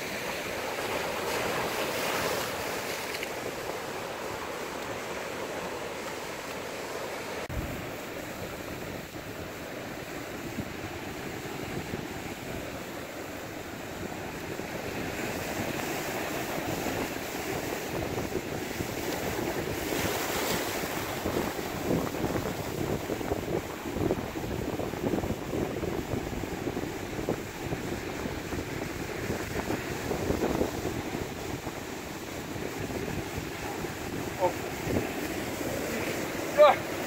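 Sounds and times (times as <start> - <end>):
surf breaking over rocks: 0.0 - 37.0
wind buffeting microphone: 7.5 - 37.0.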